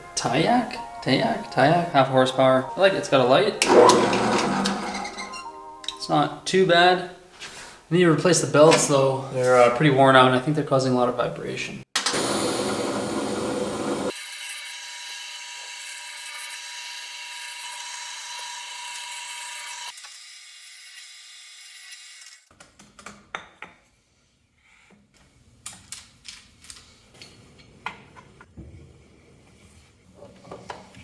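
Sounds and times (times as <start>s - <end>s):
drill press running: 3.6s - 5.3s, 12.0s - 14.1s.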